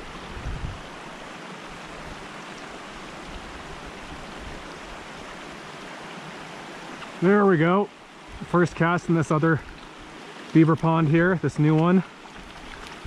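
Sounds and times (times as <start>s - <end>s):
creek water rushing: 0.0s - 13.0s.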